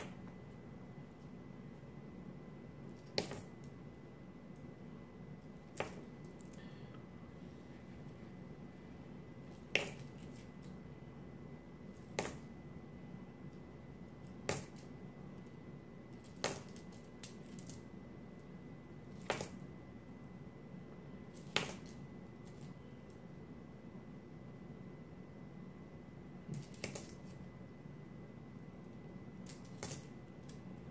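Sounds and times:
coins clicking: 2.9s - 3.7s, 9.6s - 10.7s, 12.0s - 12.5s, 14.3s - 14.9s, 16.1s - 17.8s, 21.3s - 22.7s, 26.5s - 27.4s, 29.4s - 30.7s.

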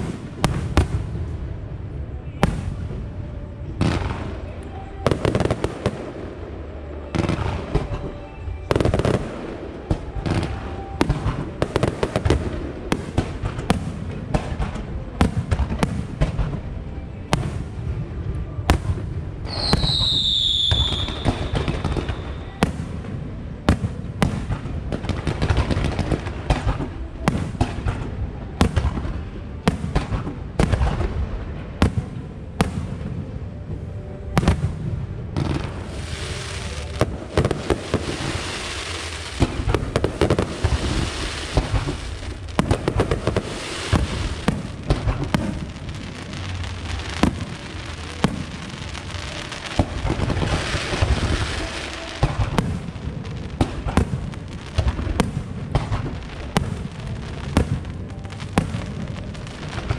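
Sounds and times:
firework bursts and bangs: 0.0s - 33.7s, 34.3s - 59.9s
firework whistle falling in pitch: 19.5s - 22.6s.

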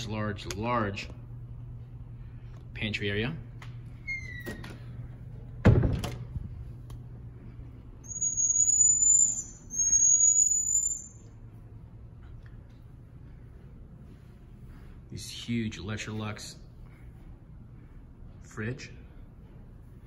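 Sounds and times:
door thudding shut: 5.6s - 6.2s
monkey whistling calls: 8.0s - 11.2s.

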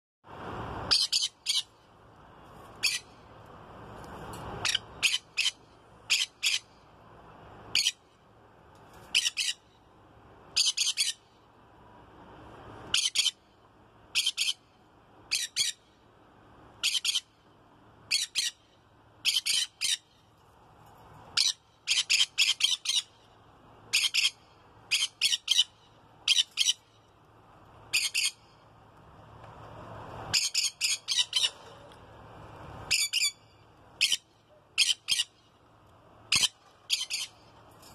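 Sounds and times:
parrots squawking: 2.8s - 3.1s, 4.6s - 6.7s, 7.7s - 8.0s, 9.1s - 9.6s, 10.6s - 11.2s, 12.9s - 13.4s, 16.8s - 17.3s, 18.1s - 18.6s, 19.2s - 20.1s, 21.4s - 23.2s, 23.9s - 26.8s, 27.9s - 28.4s, 30.3s - 31.8s, 32.9s - 33.4s, 34.0s - 35.4s, 36.3s - 37.4s.

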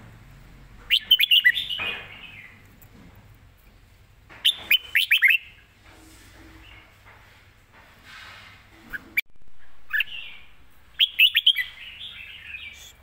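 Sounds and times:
bird singing whistled notes: 0.9s - 2.6s, 4.4s - 5.6s, 9.9s - 13.0s.

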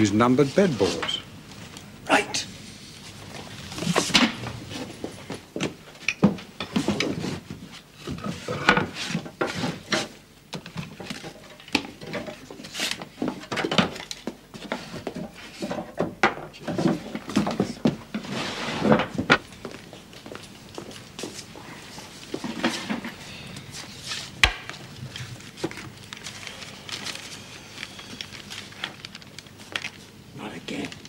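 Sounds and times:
wooden boards knocking and clattering: 8.6s - 18.2s.

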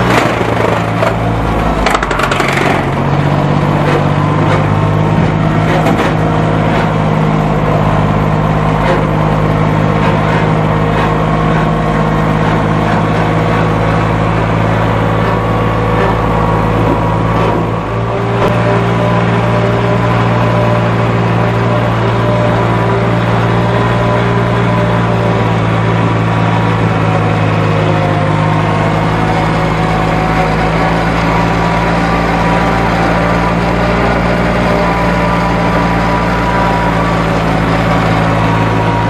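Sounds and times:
lawn mower engine running: 0.0s - 39.0s.

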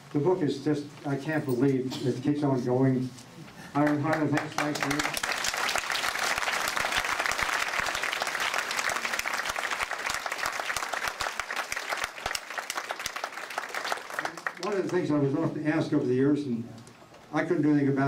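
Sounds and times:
audience applauding: 3.8s - 15.1s.

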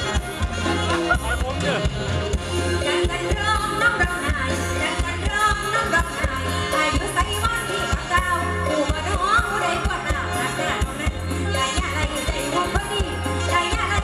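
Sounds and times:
steady drum beat: 0.0s - 8.3s
heavy bass: 0.0s - 14.0s
woman singing: 2.6s - 14.0s.

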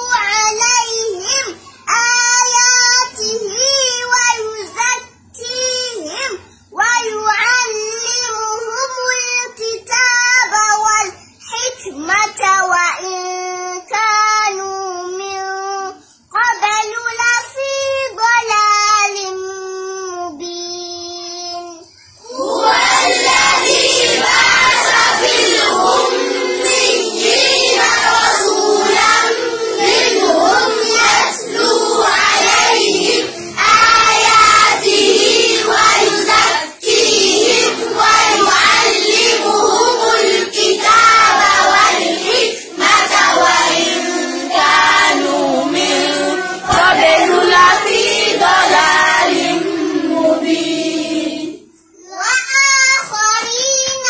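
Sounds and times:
children chanting in unison: 0.0s - 12.4s, 22.1s - 52.0s.

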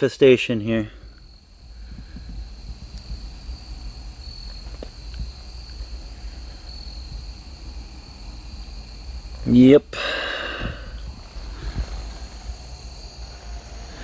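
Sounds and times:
crickets trilling: 0.0s - 14.0s
low rumble: 10.4s - 14.0s.

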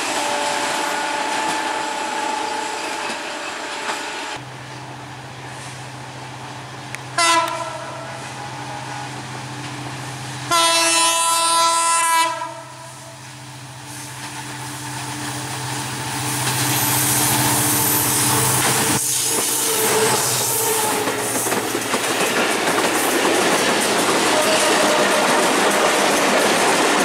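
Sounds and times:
train horn blasts: 0.0s - 4.4s, 7.1s - 9.2s, 10.5s - 13.2s, 24.2s - 26.1s
wheel and rail noise: 0.0s - 10.6s, 12.3s - 27.0s
locomotive engine drone: 13.2s - 22.0s.

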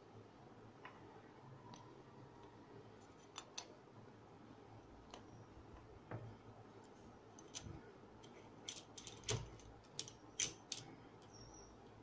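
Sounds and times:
metal parts clicking and clinking: 7.4s - 10.9s.

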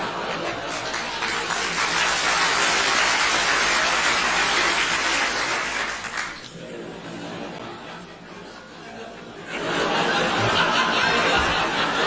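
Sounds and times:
audience applauding: 0.0s - 6.5s
audience laughing: 0.0s - 12.0s.

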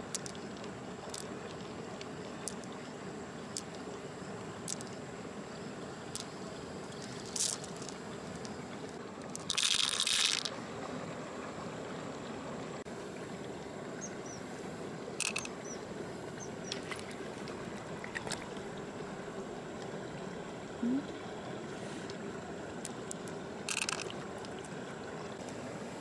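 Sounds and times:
steady hiss: 0.0s - 10.5s, 12.8s - 18.0s.

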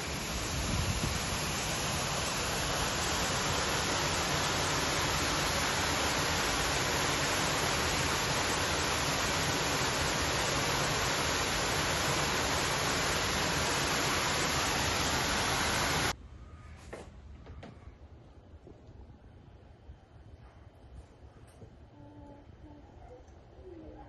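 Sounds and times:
waterfall roaring: 0.0s - 16.1s.

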